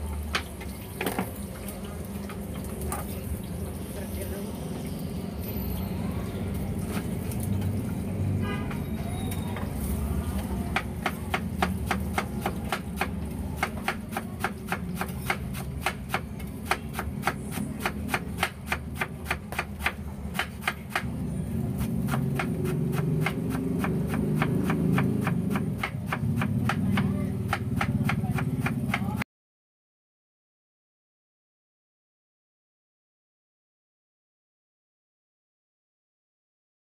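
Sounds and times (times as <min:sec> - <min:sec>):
knife chopping on wooden board: 0:10.6 - 0:21.0, 0:21.8 - 0:29.2.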